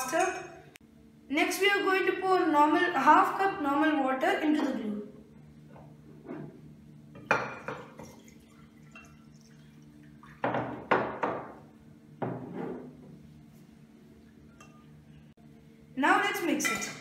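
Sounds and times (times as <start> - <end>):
mugs clinking on glass: 7.2 - 9.6
water pouring: 7.8 - 10.5.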